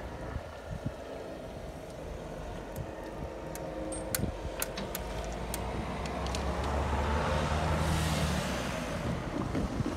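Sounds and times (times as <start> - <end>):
car driving past: 5.4 - 9.9.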